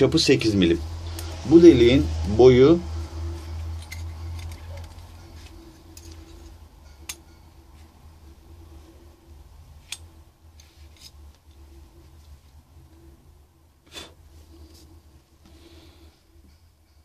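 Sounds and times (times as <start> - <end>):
low steady hum: 0.0 - 17.0
caliper metallic clicks and scrapes: 3.6 - 7.2, 9.8 - 11.2.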